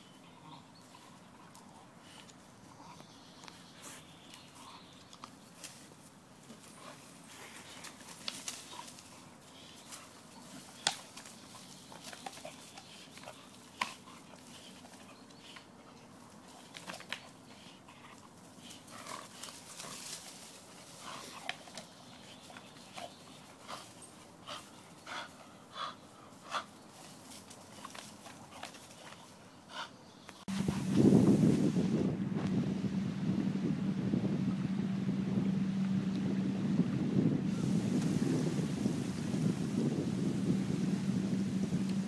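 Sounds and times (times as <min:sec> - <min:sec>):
dog panting: 0:11.9 - 0:19.9, 0:21.0 - 0:26.8.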